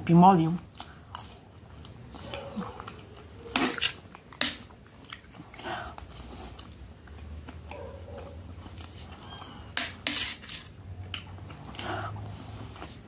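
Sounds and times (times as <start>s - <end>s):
metal spoon scraping a tray: 9.8s - 10.8s.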